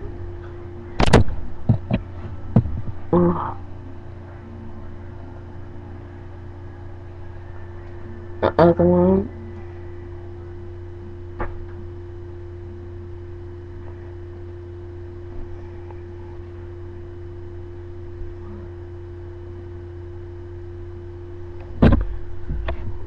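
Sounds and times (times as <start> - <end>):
steady low hum: 0.0 - 23.0
loud thump: 21.8 - 22.7.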